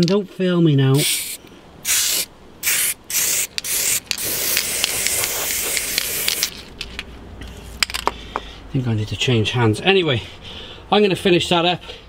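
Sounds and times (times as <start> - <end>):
aerosol spray paint hissing: 1.0 - 6.5.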